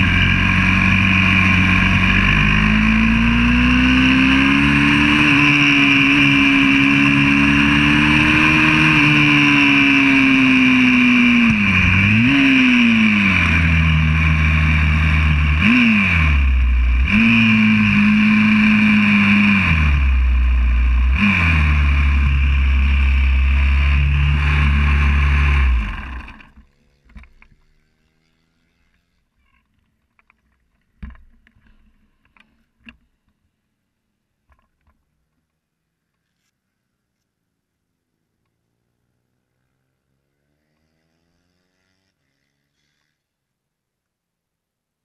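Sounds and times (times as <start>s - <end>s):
motorbike engine revving: 0.0s - 29.2s.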